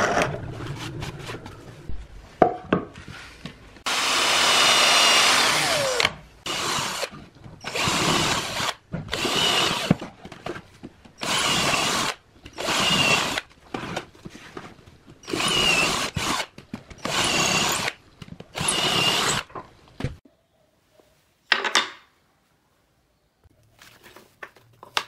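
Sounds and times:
drill boring through plywood: 0:03.9 - 0:10.0, 0:11.2 - 0:13.4, 0:15.3 - 0:18.0, 0:18.6 - 0:19.5.

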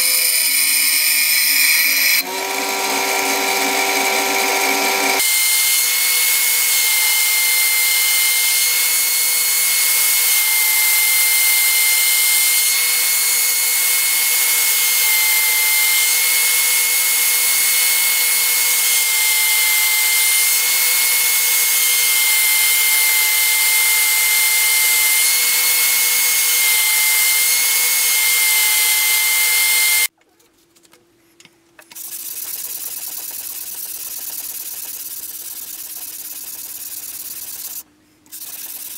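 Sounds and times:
belt sander whining: 0:00.0 - 0:30.1
sanding disc rubbing steel blade: 0:00.0 - 0:30.1.

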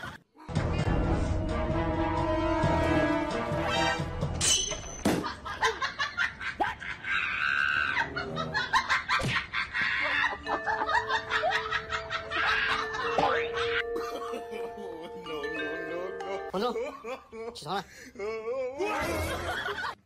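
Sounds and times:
music: 0:00.5 - 0:04.5, 0:10.4 - 0:16.7
people laughing: 0:05.2 - 0:15.7, 0:18.8 - 0:20.0.

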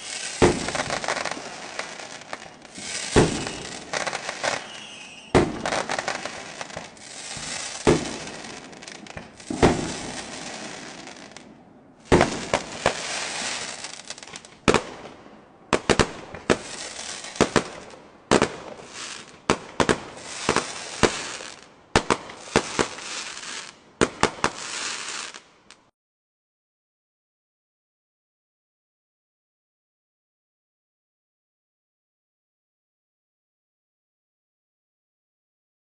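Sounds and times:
fireworks bangs: 0:00.0 - 0:25.4
fireworks crackling: 0:00.0 - 0:25.8.

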